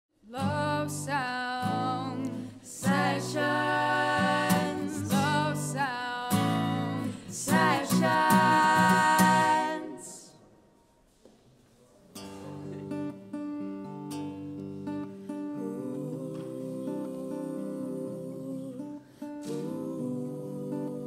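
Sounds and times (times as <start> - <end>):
person singing with vibrato: 0.2 - 10.4, 15.4 - 21.0.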